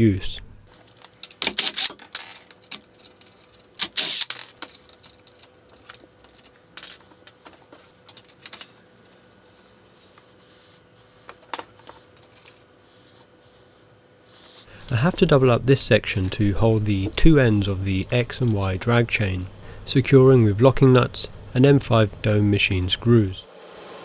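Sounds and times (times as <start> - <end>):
clicks and clinks of parts handled: 0.7 - 9.2.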